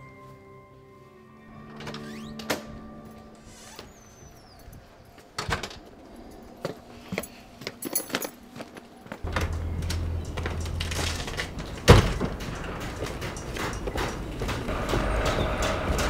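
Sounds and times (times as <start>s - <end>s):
keys jingling: 1.7s - 16.0s
door clicks: 9.2s - 16.0s
steady low hum: 9.2s - 16.0s.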